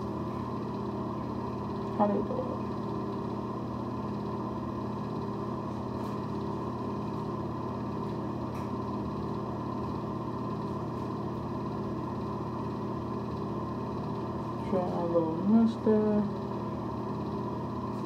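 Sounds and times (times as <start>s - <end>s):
steady machine hum: 0.0s - 18.0s.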